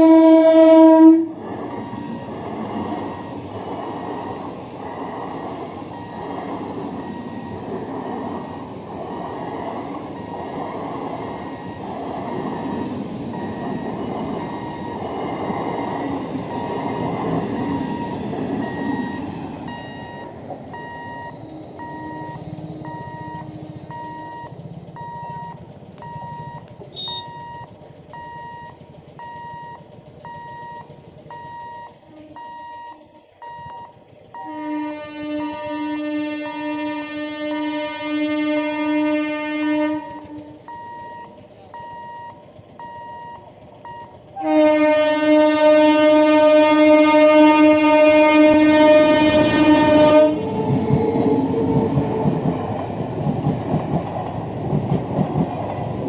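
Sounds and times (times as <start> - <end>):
train wheels clattering on rails: 0.0 - 35.8, 39.8 - 56.0
level crossing warning beeps: 1.7 - 4.6, 5.9 - 7.8, 10.1 - 10.6, 11.4 - 12.0, 13.3 - 34.6, 40.0 - 44.2.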